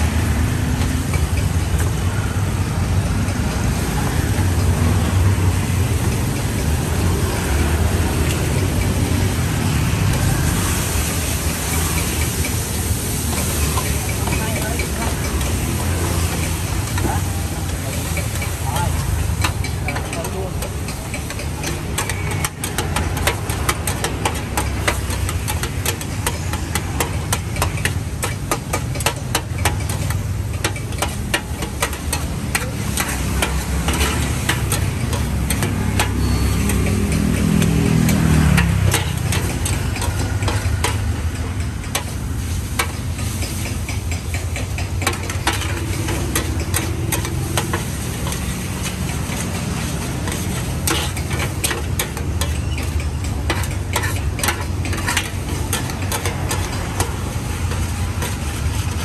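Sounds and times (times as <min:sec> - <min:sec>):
frying sizzle: 0:00.0 - 0:59.0
motorbike engines humming: 0:00.0 - 0:59.0
metal spatula scraping steel pan: 0:09.6 - 0:59.0
vehicle passing: 0:33.0 - 0:41.7.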